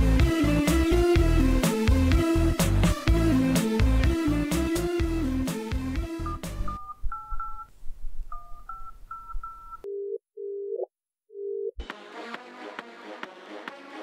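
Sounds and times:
telephone ringing tone: 6.3 - 7.7, 8.3 - 10.8
touch-tone dialing beeps: 6.3 - 7.7, 8.3 - 10.8.

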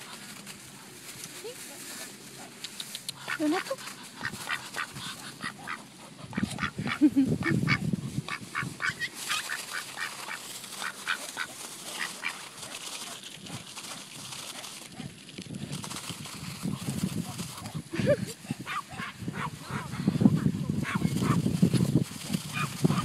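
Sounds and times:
ducks quacking: 3.2 - 12.4, 18.4 - 21.4.

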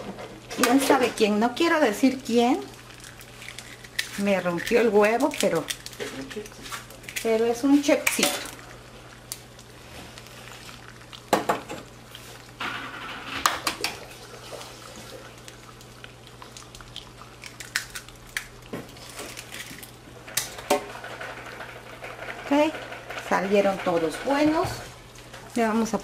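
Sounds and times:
eggs cracking against ceramic bowl: 2.8 - 7.4, 15.4 - 21.5.

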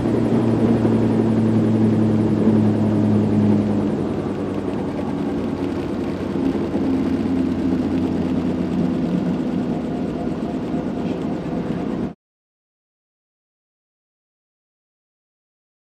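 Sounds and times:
helicopter engine and rotor drone: 0.0 - 12.2.

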